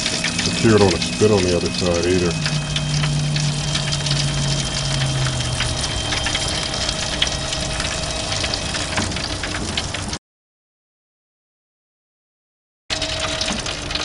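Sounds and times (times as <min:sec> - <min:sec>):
gas grill burners hissing: 0:00.0 - 0:10.1
drippings sizzling and crackling: 0:00.0 - 0:10.2, 0:12.9 - 0:14.0.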